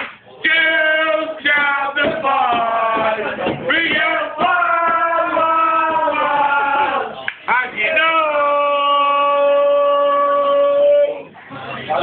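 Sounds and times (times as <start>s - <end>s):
men singing long notes: 0.4s - 7.2s.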